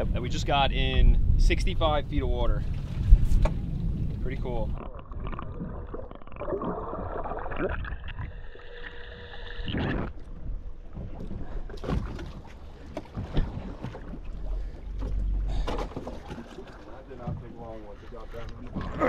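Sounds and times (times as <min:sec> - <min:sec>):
wind on microphone: 0:00.0 - 0:05.9.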